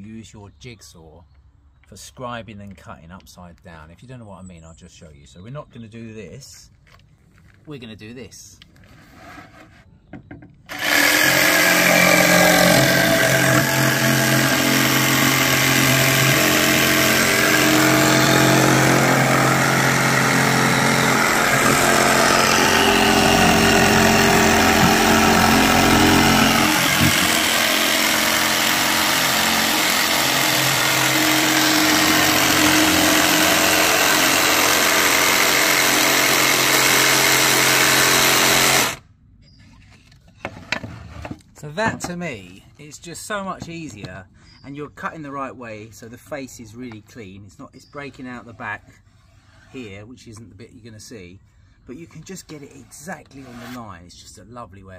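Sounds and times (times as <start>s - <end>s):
jigsaw cutting plywood: 10.7s - 39.0s.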